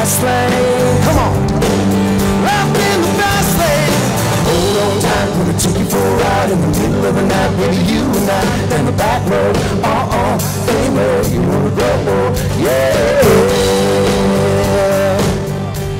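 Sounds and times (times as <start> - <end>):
bass guitar: 0.0 - 15.9
drums: 0.0 - 15.9
electric and acoustic guitars: 0.0 - 15.9
pitch-bending lead melody: 13.2 - 14.2.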